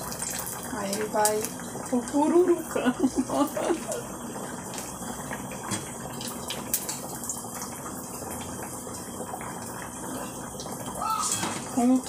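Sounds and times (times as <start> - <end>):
meat deep-frying in hot fat: 0.0 - 12.0
sharp crackles of frying: 0.0 - 12.0.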